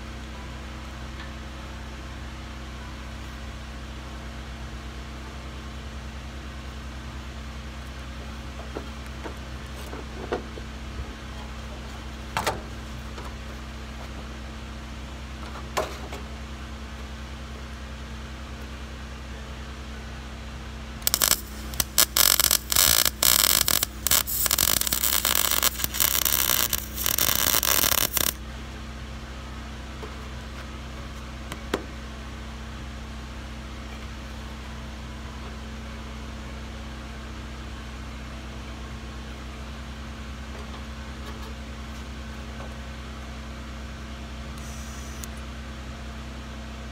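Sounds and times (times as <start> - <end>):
low hum: 20.9 - 31.1
welding arc crackling: 21.0 - 28.4.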